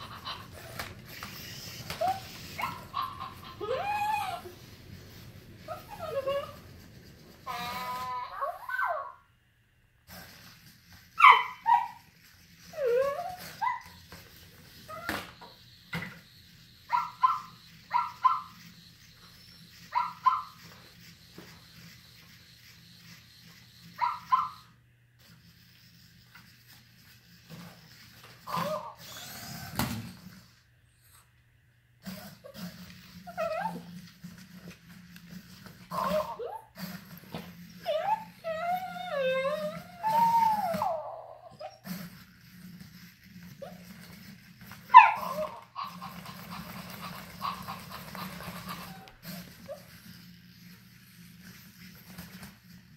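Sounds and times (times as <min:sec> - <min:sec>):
dog-like whimpers and whines: 0:00.0 - 0:06.8, 0:07.4 - 0:09.2, 0:11.2 - 0:15.6, 0:16.8 - 0:21.2, 0:27.8 - 0:29.8, 0:32.0 - 0:34.8, 0:35.9 - 0:42.2, 0:44.8 - 0:46.6
robot toy dog electronic barks: 0:16.8 - 0:18.8.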